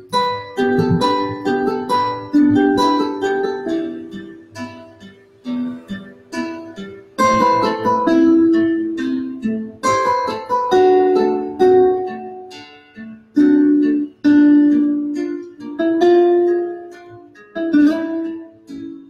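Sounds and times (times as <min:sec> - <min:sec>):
plucked string instrument music: 0:00.0 - 0:19.0.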